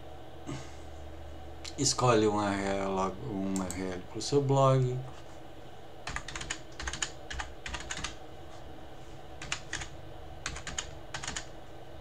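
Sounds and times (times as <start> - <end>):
keyboard typing: 6.1 - 8.2, 9.4 - 11.5.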